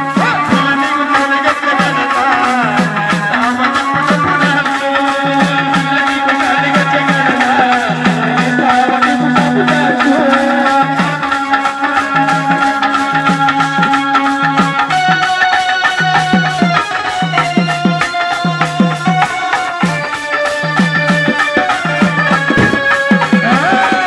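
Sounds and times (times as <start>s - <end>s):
man singing: 0.0s - 15.2s, 21.1s - 24.0s
low drum strokes: 22.4s - 23.7s.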